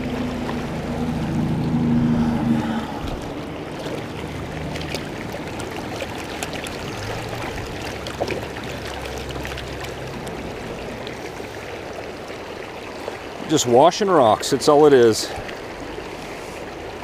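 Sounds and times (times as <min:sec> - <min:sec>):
creek running: 0:00.0 - 0:17.0.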